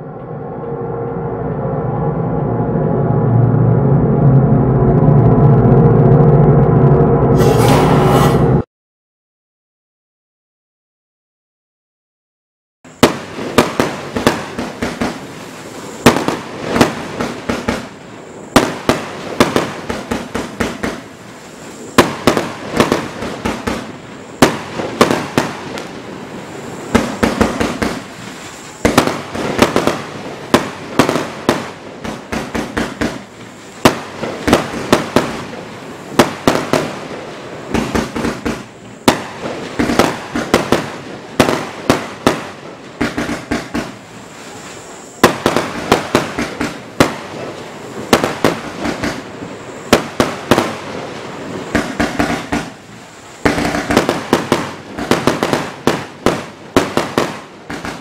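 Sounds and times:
fireworks bangs and crackles: 0:12.9 - 0:58.0.

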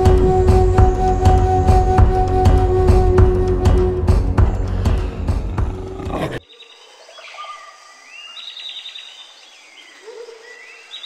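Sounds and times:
music with drum hits: 0:00.0 - 0:06.0.

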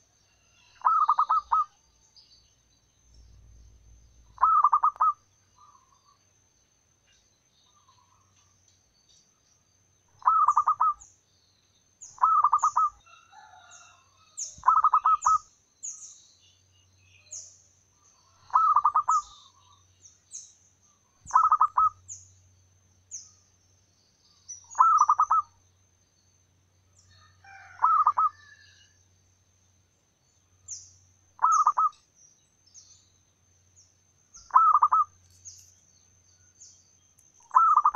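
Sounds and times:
dove cooing trill: 0:00.6 - 0:01.8, 0:04.4 - 0:06.0, 0:10.2 - 0:11.0, 0:12.2 - 0:13.6, 0:14.6 - 0:15.4, 0:18.3 - 0:19.6, 0:21.3 - 0:22.0, 0:24.8 - 0:25.5, 0:27.5 - 0:28.7, 0:31.4 - 0:32.0, 0:34.5 - 0:35.1, 0:37.5 - 0:37.9.

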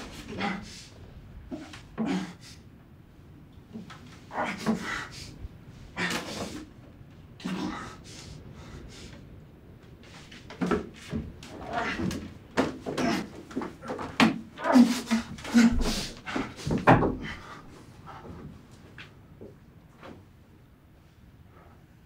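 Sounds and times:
man gasping and groaning: 0:00.0 - 0:02.7, 0:03.7 - 0:06.7, 0:07.4 - 0:09.2, 0:14.6 - 0:18.4.

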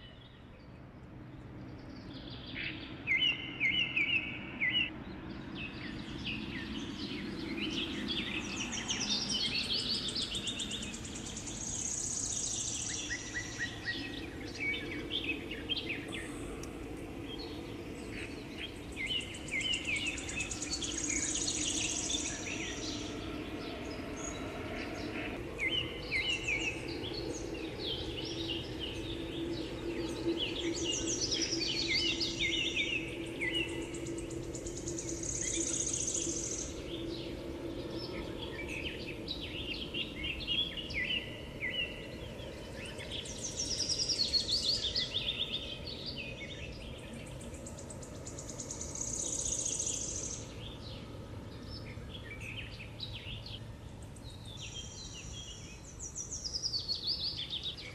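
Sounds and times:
faint low drone: 0:00.0 - 0:57.9
small birds chirping: 0:00.0 - 0:57.9.

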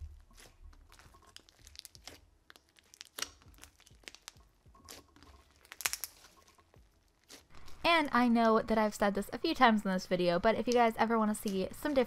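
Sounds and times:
crunchy slime squeezed by hand: 0:00.3 - 0:06.6.

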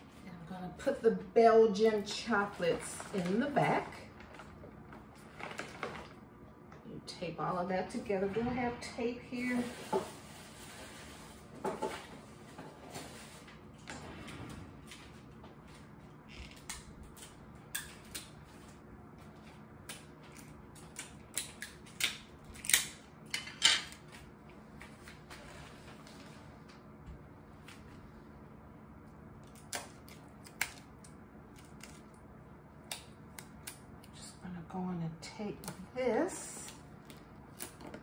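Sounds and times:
packaging crinkling: 0:02.7 - 0:06.2.

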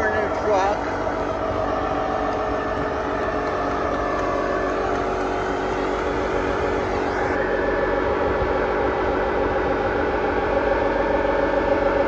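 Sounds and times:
tyres spinning on pavement: 0:00.0 - 0:07.4
truck engine at high revs: 0:00.0 - 0:12.0.

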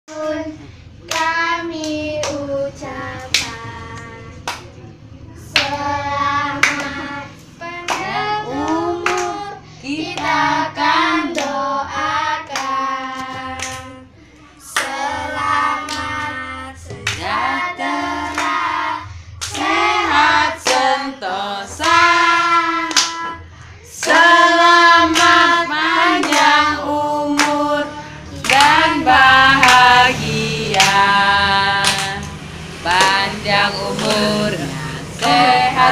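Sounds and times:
hand claps: 0:01.1 - 0:02.4, 0:03.3 - 0:04.8, 0:05.5 - 0:05.8, 0:06.6 - 0:07.0, 0:07.9 - 0:09.4, 0:12.5 - 0:13.9, 0:20.6 - 0:20.9, 0:21.7 - 0:22.1, 0:22.8 - 0:23.3, 0:24.0 - 0:24.3, 0:25.1 - 0:26.7, 0:27.3 - 0:27.6, 0:28.4 - 0:31.2, 0:31.8 - 0:35.9
children singing: 0:05.4 - 0:35.9.

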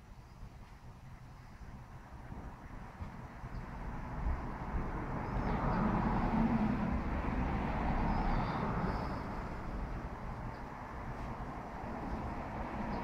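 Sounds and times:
steady low rumble: 0:00.0 - 0:13.0
vehicle passing by: 0:03.7 - 0:13.0.

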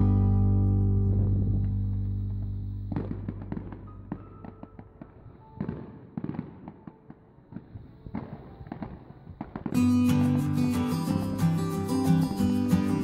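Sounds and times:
strummed guitar music: 0:00.0 - 0:04.6, 0:09.6 - 0:13.0
fireworks crackling and popping: 0:01.1 - 0:13.0.

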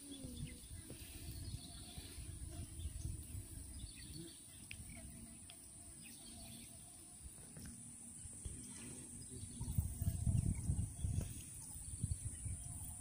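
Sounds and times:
wind buffeting microphone: 0:00.0 - 0:05.1, 0:09.2 - 0:13.0
faint bird chirps: 0:00.0 - 0:13.0.

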